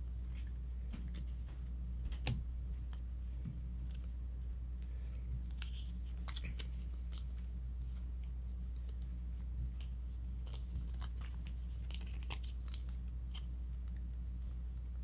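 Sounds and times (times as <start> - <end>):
steady low hum: 0.0 - 15.0
cards clicking and rustling: 5.4 - 7.4, 8.7 - 13.5.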